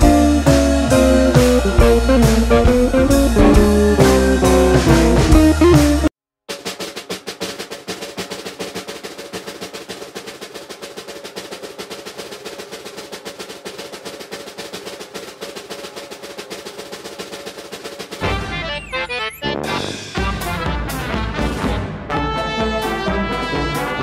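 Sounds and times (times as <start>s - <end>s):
snare drum roll: 0.0s - 22.2s.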